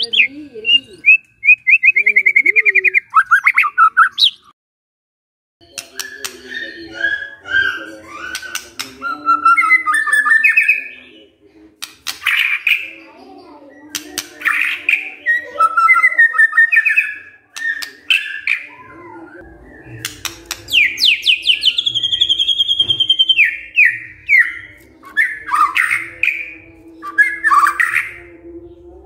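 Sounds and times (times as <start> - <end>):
bird singing whistled phrases: 0.0 - 4.5, 5.6 - 11.2, 13.9 - 28.2.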